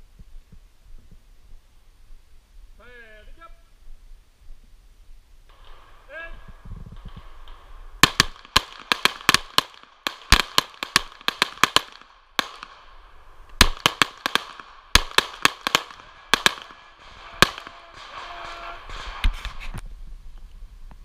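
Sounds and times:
pistol shots: 5.5 - 19.4.

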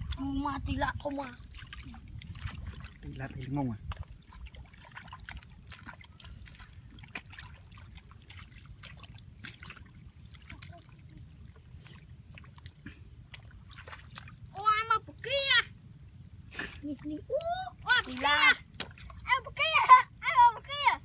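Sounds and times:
hands splashing in muddy water: 1.2 - 11.1.

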